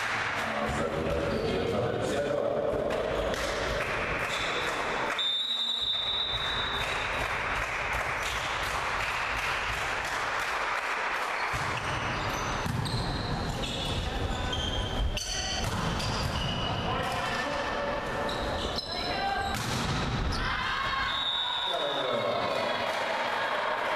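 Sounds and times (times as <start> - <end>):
players' voices: 0.2 - 3.7, 13.4 - 23.9
volleyball hits: 2.8 - 17.5, 19.4 - 20.5
high whistle: 5.1 - 6.9, 21.0 - 22.4
sneakers squeaking on court: 11.4 - 17.0, 18.2 - 19.7.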